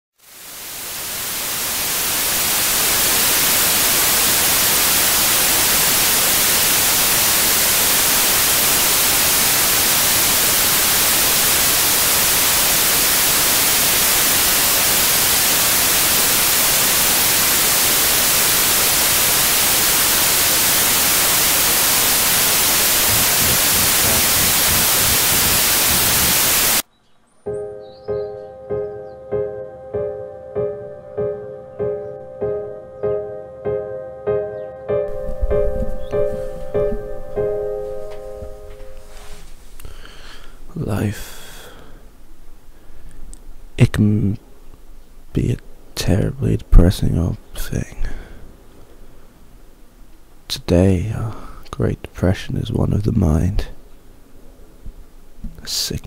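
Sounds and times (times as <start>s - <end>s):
loud static hiss: 0.2s - 27.0s, 27.8s - 56.0s
soft music with repeated notes: 27.5s - 39.2s.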